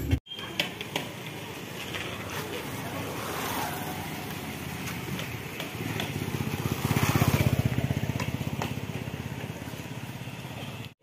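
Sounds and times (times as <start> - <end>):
motorcycle engine passing close: 5.8 - 10.2.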